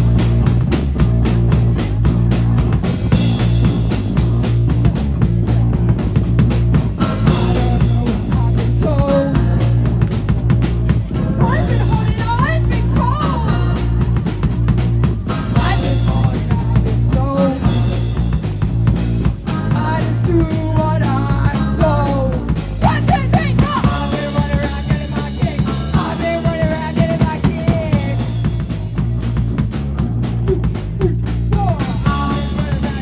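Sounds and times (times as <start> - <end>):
drum kit: 0.0 - 33.0
electric guitars: 0.0 - 33.0
woman singing: 7.0 - 9.8, 11.3 - 14.2, 15.3 - 18.1, 19.5 - 28.6, 31.6 - 33.0.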